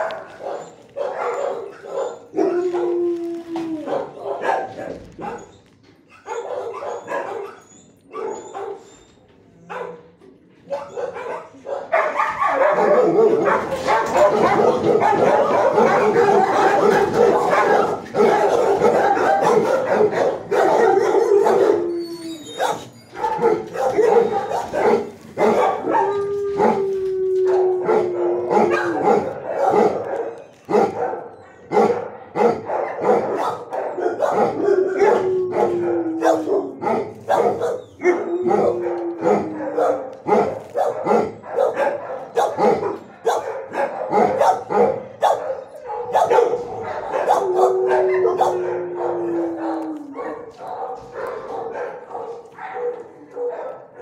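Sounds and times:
dog howling: 0.0s - 4.4s, 12.0s - 31.7s, 33.2s - 43.0s, 45.5s - 53.9s
dogs barking and yipping: 0.0s - 54.0s.

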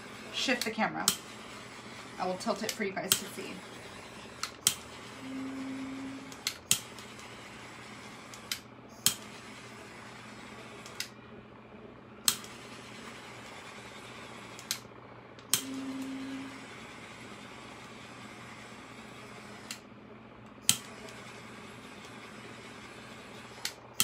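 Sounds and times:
torch trigger clicks: 0.3s - 5.2s, 6.1s - 7.5s, 8.2s - 9.3s, 10.8s - 11.2s, 12.2s - 12.7s, 14.5s - 16.1s, 19.6s - 21.3s, 23.5s - 24.0s
short low hum: 3.3s - 6.8s, 14.5s - 17.6s.

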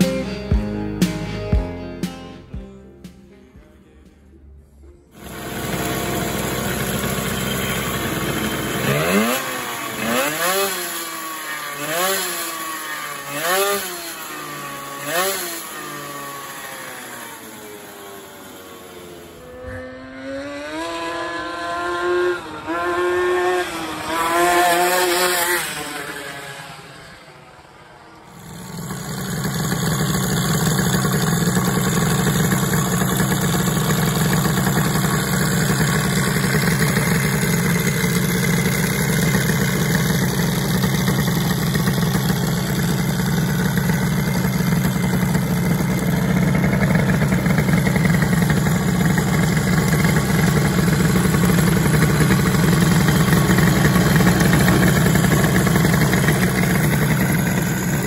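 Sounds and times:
two-stroke moped engine idling: 5.1s - 19.6s, 21.2s - 58.0s.

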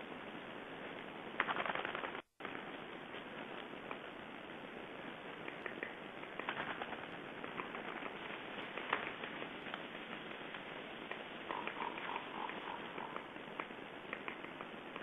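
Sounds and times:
steady outdoor hiss: 0.0s - 15.0s
faint clicks: 5.3s - 15.0s.

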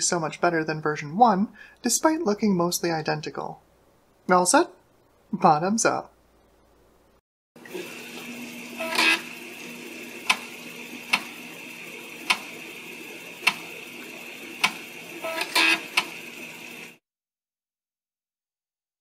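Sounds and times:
steady mechanical hum: 7.6s - 16.9s.

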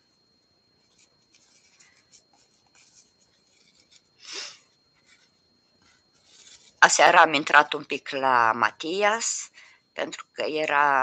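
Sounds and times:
crochet hook scratching yarn: 0.8s - 7.3s.

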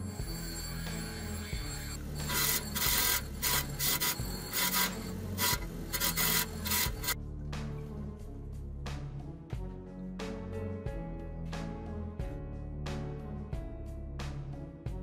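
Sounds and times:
background music: 0.0s - 15.0s
saw rasping through stone: 1.2s - 7.2s.

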